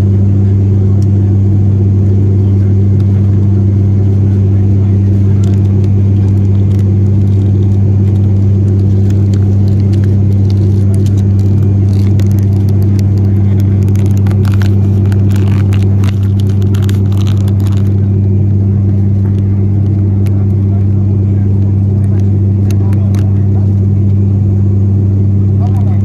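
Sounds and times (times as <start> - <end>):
rustling and clicks: 5.4 - 18.1.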